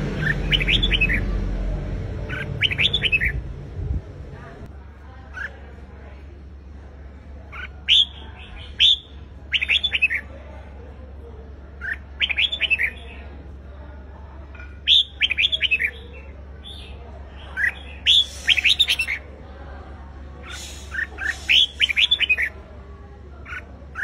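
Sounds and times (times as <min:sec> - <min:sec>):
steady low hum: 0:00.0 - 0:09.7
bird singing quick clear notes: 0:17.6 - 0:19.2, 0:20.4 - 0:22.5.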